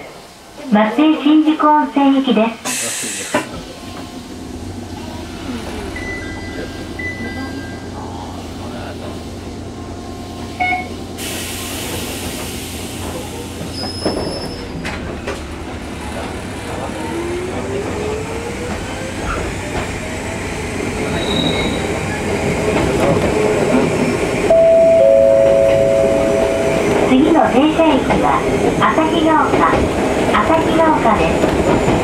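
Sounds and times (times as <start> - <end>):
train running noise: 0.0 - 32.0
high wheel squeals: 13.7 - 15.0, 21.0 - 22.2.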